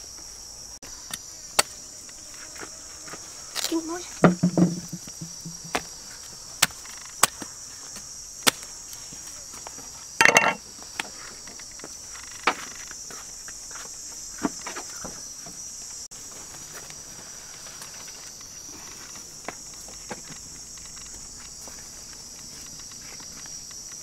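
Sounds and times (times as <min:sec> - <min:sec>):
insect chorus: 0:00.0 - 0:24.0
knocks and clatters: 0:04.2 - 0:05.9.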